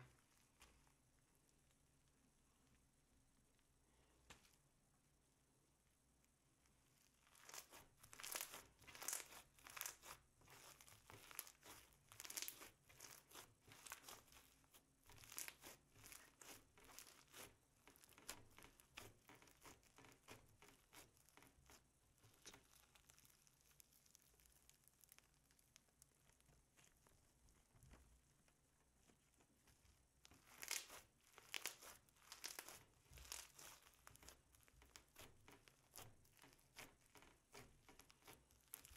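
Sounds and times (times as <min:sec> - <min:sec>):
slime with foam beads crackling: 0:06.9 - 0:38.9.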